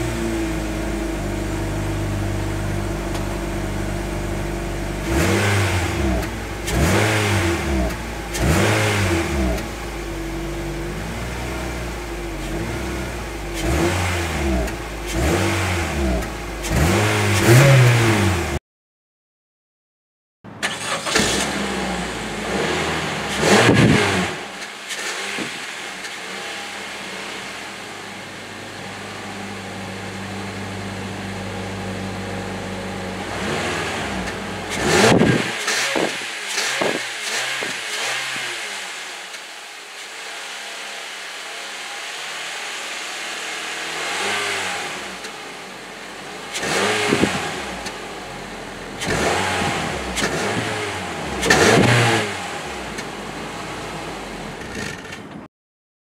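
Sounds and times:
car exhaust idling: 0.0s - 17.0s, 21.5s - 38.8s, 45.0s - 55.3s
engine throttle blips: 20.6s - 39.0s, 44.0s - 55.3s.

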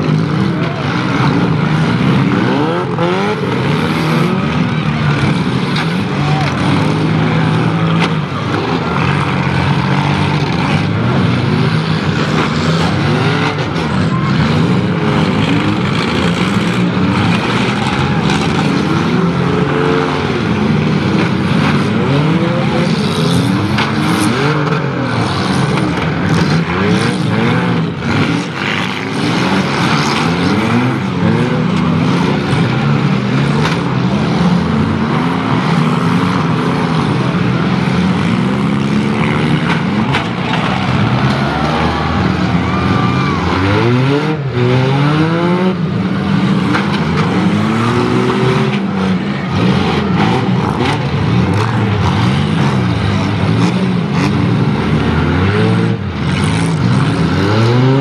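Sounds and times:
car engines revving: 0.0s - 58.0s
cars crunching impacts: 39.1s - 41.6s.

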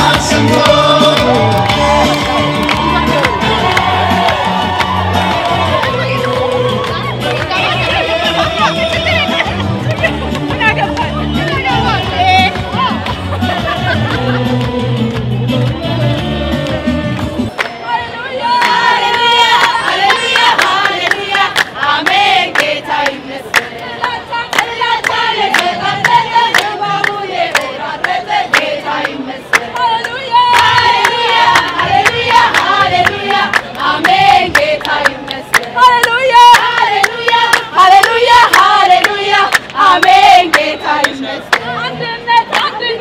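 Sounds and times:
rhythmic hand-clapping: 0.0s - 17.8s, 18.5s - 43.0s
women singing in unison: 0.0s - 43.0s.

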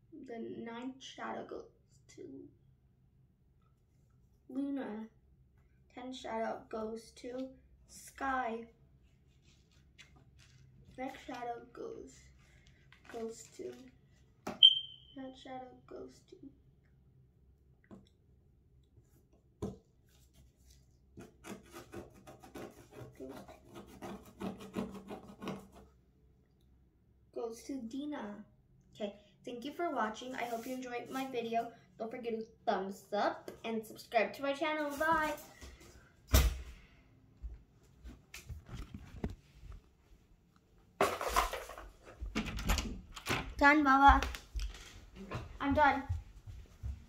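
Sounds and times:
fingertip scratching paper: 21.2s - 25.9s
child footsteps: 43.6s - 47.0s.

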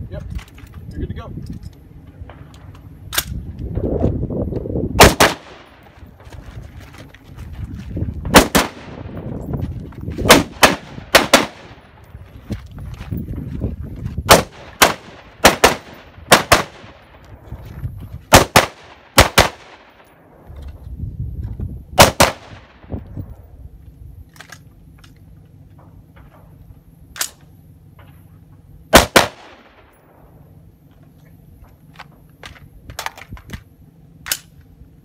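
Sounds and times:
rifle shots: 5.0s - 5.8s, 8.3s - 9.2s, 10.2s - 12.0s, 14.3s - 17.2s, 18.3s - 20.1s, 22.0s - 22.9s, 28.9s - 30.0s.

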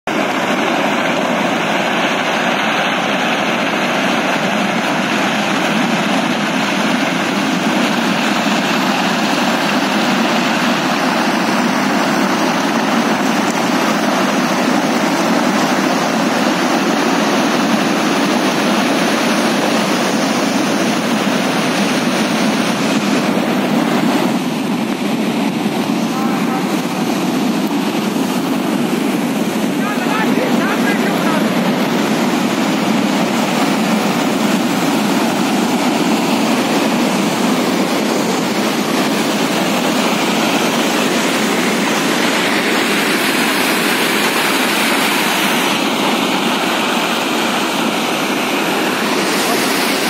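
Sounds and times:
flood water rushing: 0.0s - 50.0s.

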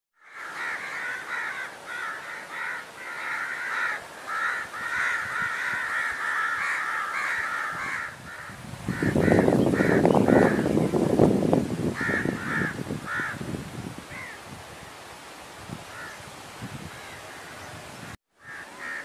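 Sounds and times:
crows cawing: 0.2s - 10.8s, 12.0s - 13.4s, 14.1s - 14.4s, 15.9s - 16.2s, 18.4s - 19.0s.

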